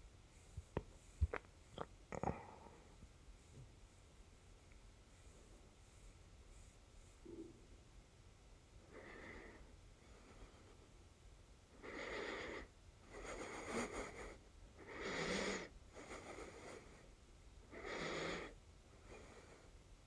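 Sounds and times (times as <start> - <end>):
person breathing heavily: 8.8 - 10.9, 11.8 - 17.1.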